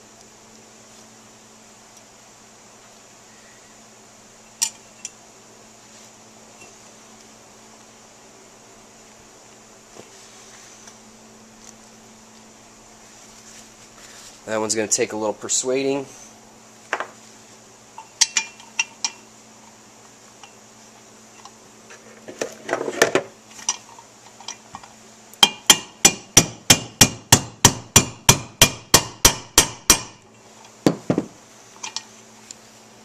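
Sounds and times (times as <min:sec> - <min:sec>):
hammer tapping bearing driver: 0:25.4 - 0:30.2
handling noise: 0:30.5 - 0:32.2.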